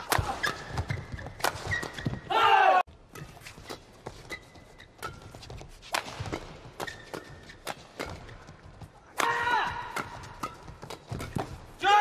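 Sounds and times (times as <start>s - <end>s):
rackets hitting shuttlecock: 0.0s - 2.2s, 3.1s - 11.8s
shoes squeaking on court: 0.3s - 2.3s, 3.1s - 9.0s
person shouting: 2.3s - 2.8s, 9.2s - 10.0s, 11.8s - 12.0s.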